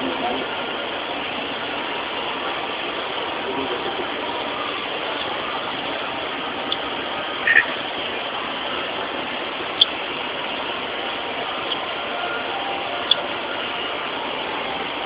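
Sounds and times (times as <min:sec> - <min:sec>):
steady background noise: 0:00.0 - 0:15.0
short high chirps: 0:07.4 - 0:07.8.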